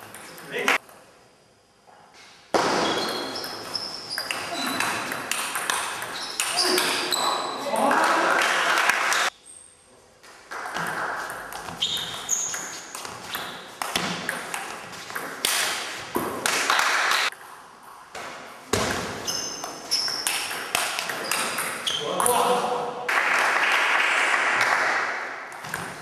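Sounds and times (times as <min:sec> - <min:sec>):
shoes squeaking: 0:02.7 - 0:07.8, 0:10.8 - 0:14.1, 0:19.1 - 0:22.4.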